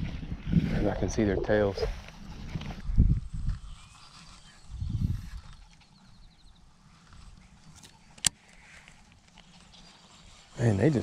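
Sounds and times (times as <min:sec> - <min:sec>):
low rush of noise: 0:00.6 - 0:02.1.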